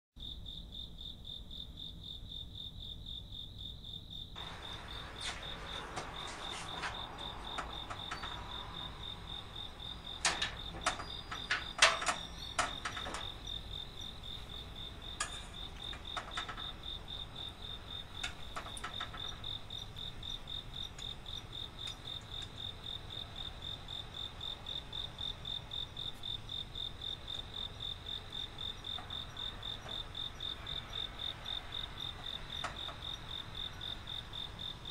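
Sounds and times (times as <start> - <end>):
cricket trilling: 0.2 - 34.9.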